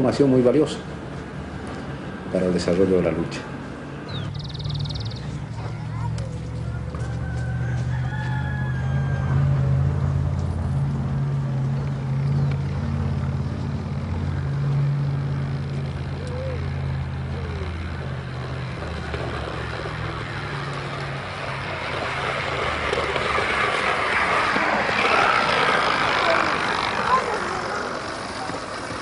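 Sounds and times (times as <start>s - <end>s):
broad rushing noise: 0.0s - 29.0s
low engine hum: 0.4s - 29.0s.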